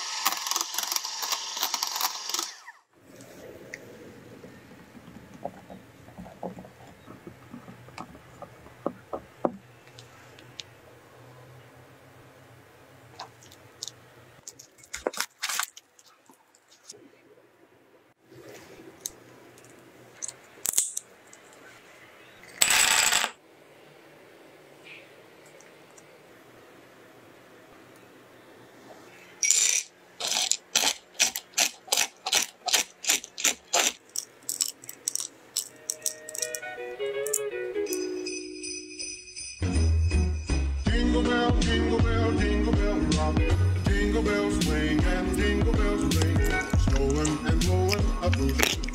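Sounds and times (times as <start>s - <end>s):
nuts rattling onto cutting board: 29.4s - 36.6s
spatula stirring cream in bowl: 45.4s - 48.9s.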